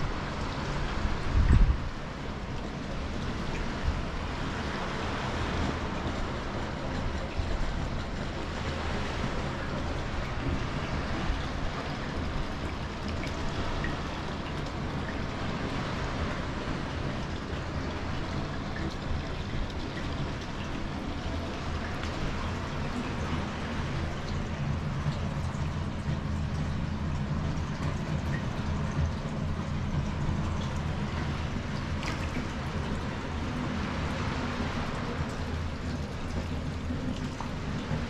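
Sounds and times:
wind on microphone: 0.0s - 9.0s
small waves on beach: 0.0s - 25.9s, 30.1s - 38.0s.

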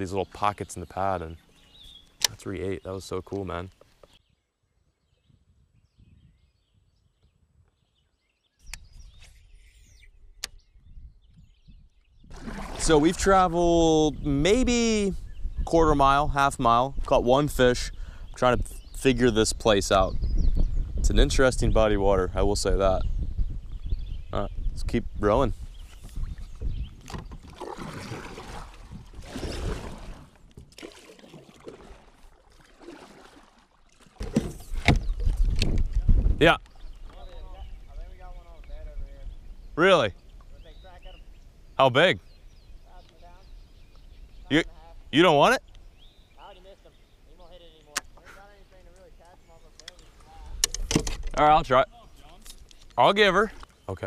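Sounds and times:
sharp clicks: 2.0s - 2.4s, 48.9s - 51.3s
kayak paddle swishing through water: 12.3s - 13.4s, 25.9s - 36.2s.

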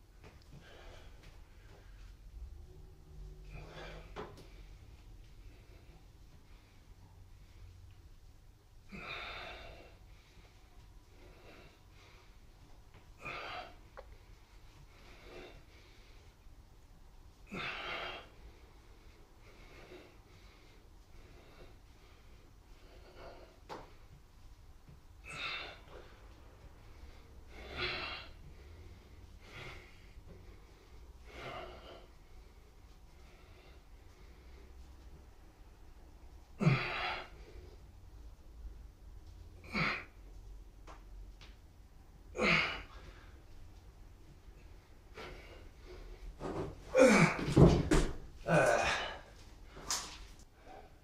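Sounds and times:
man breathing hard: 0.2s - 7.9s, 8.8s - 16.5s, 17.4s - 24.0s, 25.2s - 35.1s, 36.5s - 38.0s, 48.4s - 51.0s
man exhaling and gasping: 3.4s - 4.5s, 8.9s - 10.0s, 17.5s - 18.3s, 36.6s - 37.5s, 39.6s - 40.2s, 42.3s - 43.4s, 46.8s - 49.9s
feet thumping on floor: 46.4s - 48.2s.

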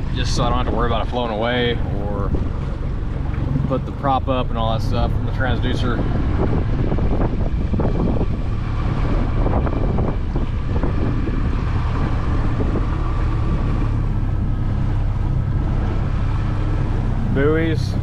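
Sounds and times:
small boat motor humming: 0.0s - 18.0s
wind buffeting microphone: 0.0s - 18.0s.

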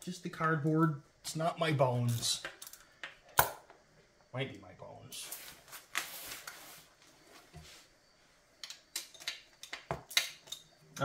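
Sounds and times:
metal clicks and clinks: 8.6s - 10.7s.

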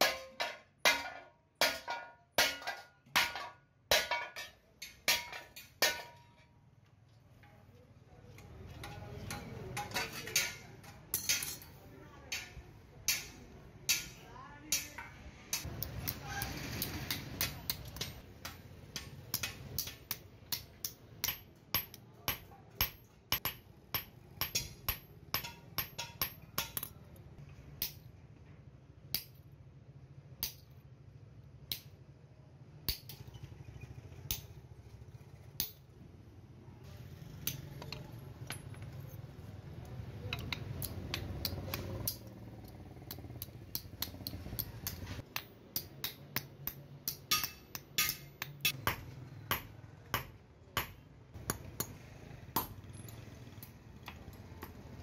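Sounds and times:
hammer tapping metal on anvil: 0.0s - 6.5s, 8.7s - 16.2s, 16.8s - 27.1s, 27.8s - 28.1s, 29.1s - 29.4s, 30.4s - 30.7s, 40.2s - 52.0s, 52.6s - 55.0s.

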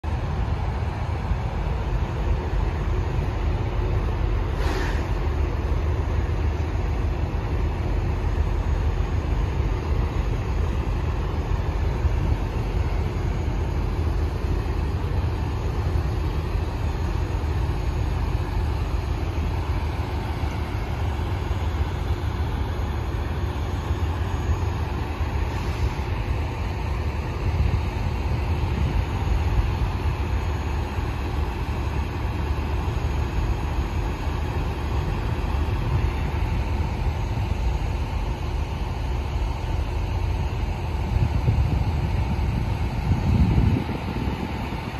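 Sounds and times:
diesel trucks idling: 0.0s - 44.9s.

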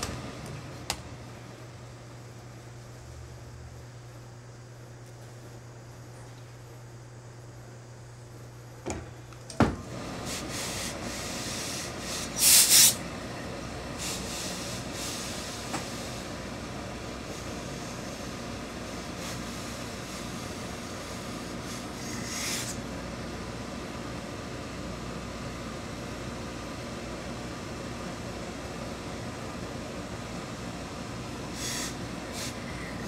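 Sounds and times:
iron sliding on cloth hiss: 9.9s - 13.1s, 13.9s - 22.9s, 31.4s - 33.0s
steam blasts: 9.9s - 13.1s, 13.9s - 22.9s, 31.4s - 33.0s.

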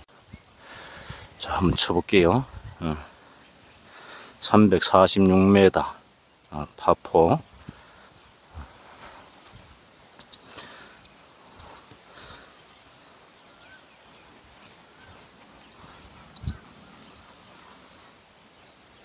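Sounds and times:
birds chirping: 0.0s - 19.0s
sharp clicks: 10.1s - 12.7s, 16.3s - 16.6s.

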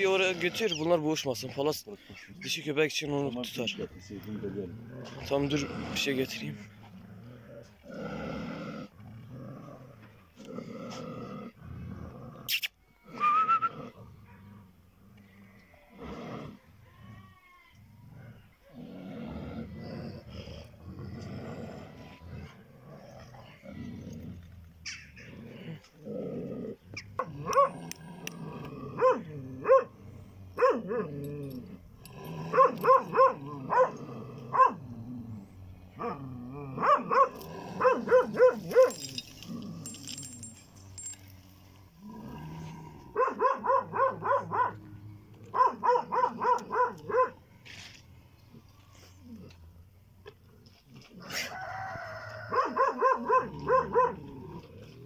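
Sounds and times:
dogs growling: 0.0s - 1.7s, 3.4s - 12.5s, 13.1s - 16.7s, 18.0s - 41.2s, 41.9s - 47.6s, 52.5s - 55.0s
dogs barking rapidly: 27.0s - 27.8s, 29.0s - 30.0s, 30.6s - 31.1s, 32.5s - 34.9s, 36.8s - 39.2s, 43.1s - 44.8s, 45.5s - 47.4s, 52.5s - 54.2s.

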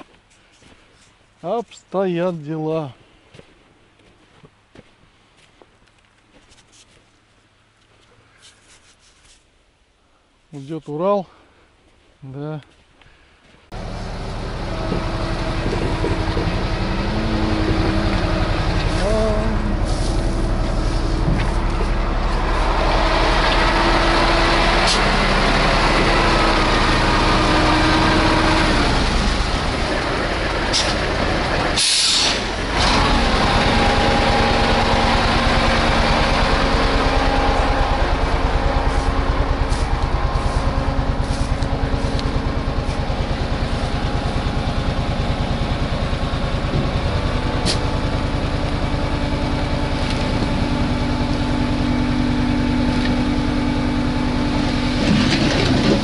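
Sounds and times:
truck engine driving through mud: 13.7s - 56.0s
short hiss: 31.8s - 32.4s.

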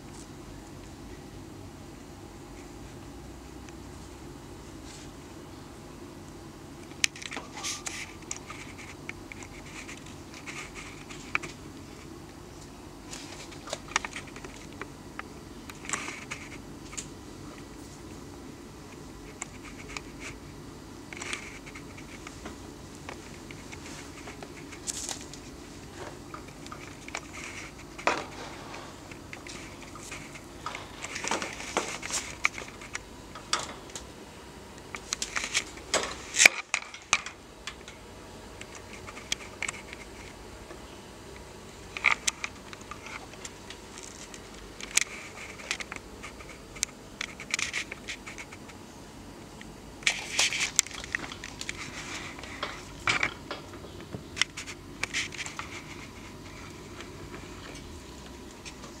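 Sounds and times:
cats rustling on towel bedding: 21.3s - 33.0s.

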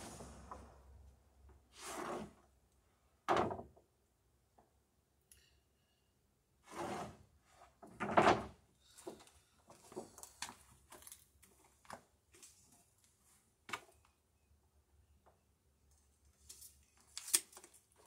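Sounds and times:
wooden boards knocking and scraping: 7.9s - 9.2s.

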